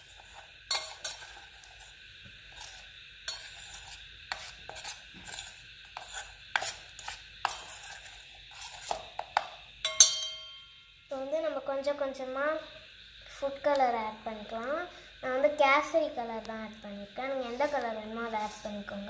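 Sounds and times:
spoon scraping steel bowl: 0:00.0 - 0:01.9, 0:02.5 - 0:09.2
spoon clinking against bowl: 0:09.8 - 0:10.8.

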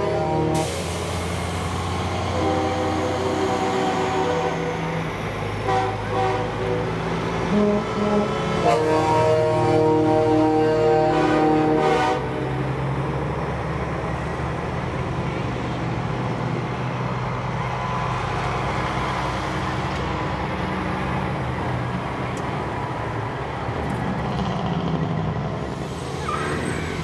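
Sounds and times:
diesel trucks driving past: 0:00.0 - 0:27.0
truck air horn chord: 0:02.3 - 0:04.8, 0:05.6 - 0:06.9, 0:07.5 - 0:12.4.

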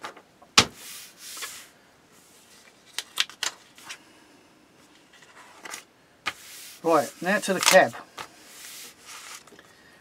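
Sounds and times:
paper pages rustling: 0:05.1 - 0:09.6.

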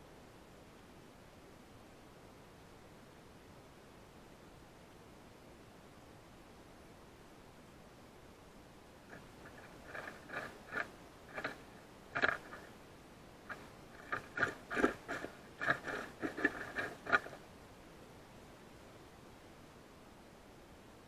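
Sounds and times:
squirrel crunching dry leaves: 0:09.1 - 0:12.7, 0:13.5 - 0:17.4.

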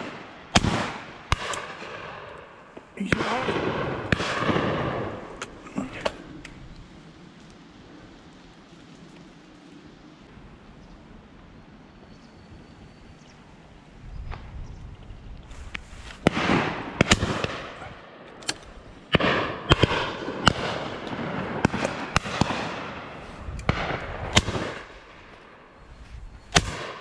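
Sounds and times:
rolling echo of shots: 0:00.0 - 0:02.4, 0:03.0 - 0:05.4, 0:16.2 - 0:18.3, 0:19.1 - 0:25.7, 0:26.5 - 0:27.0
shotgun shots: 0:03.0 - 0:05.4, 0:16.2 - 0:17.9, 0:18.5 - 0:23.1, 0:23.7 - 0:25.2, 0:26.5 - 0:27.0.

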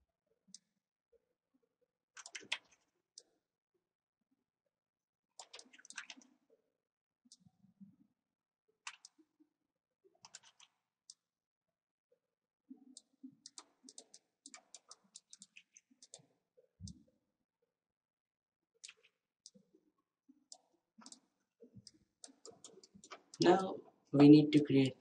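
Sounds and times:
computer mouse and keyboard clicking: 0:02.2 - 0:03.3, 0:05.4 - 0:06.3, 0:08.9 - 0:09.2, 0:10.2 - 0:10.8, 0:13.0 - 0:16.3, 0:18.8 - 0:19.6, 0:20.5 - 0:23.4.

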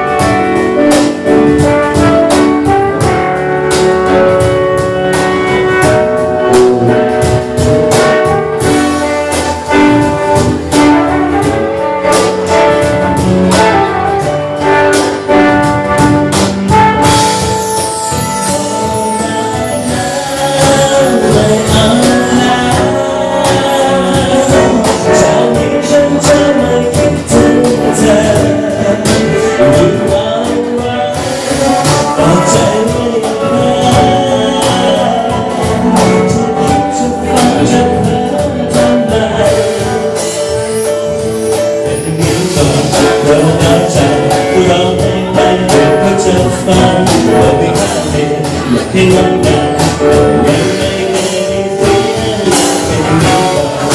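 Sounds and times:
guitar: 0:00.0 - 0:53.9
percussion beat: 0:00.0 - 0:53.9
trumpet: 0:00.0 - 0:53.9
man singing through microphone: 0:17.0 - 0:53.9.

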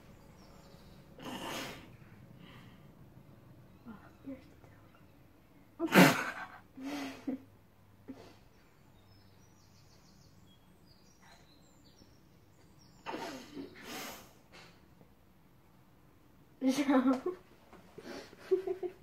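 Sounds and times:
faint bird chirps: 0:00.0 - 0:01.5, 0:08.2 - 0:13.9.

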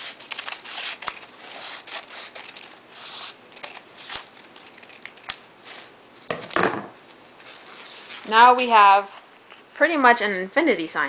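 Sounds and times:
scissors snipping paper: 0:00.0 - 0:05.4
paper rustling: 0:00.0 - 0:05.9.

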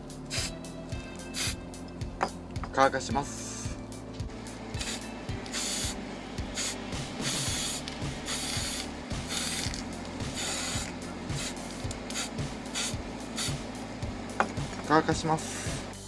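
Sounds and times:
aerosol spray can hissing: 0:00.3 - 0:00.6, 0:01.3 - 0:01.6, 0:04.8 - 0:13.7.

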